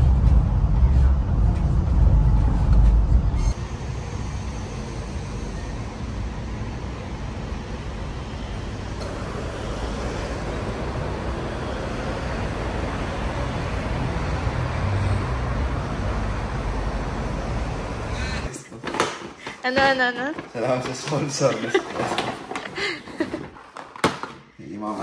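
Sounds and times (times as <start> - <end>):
passing cars: 6.2 - 18.5.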